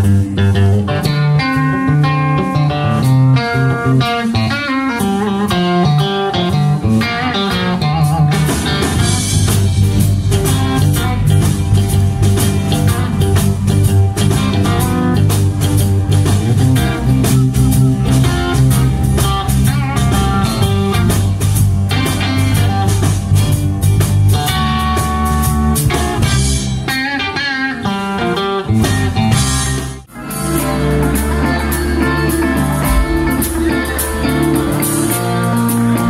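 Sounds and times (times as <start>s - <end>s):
blues-rock band playing: 0.0s - 36.0s
electric guitar lead line: 0.0s - 36.0s.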